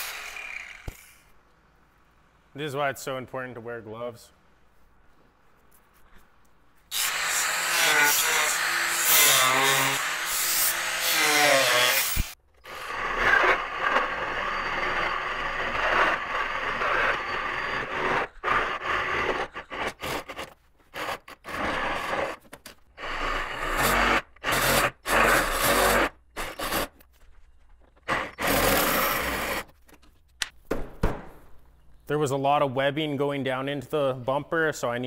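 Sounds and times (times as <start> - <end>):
power tool cutting plastic: 0.0 - 1.2, 6.9 - 22.4, 23.0 - 27.0, 28.1 - 29.7.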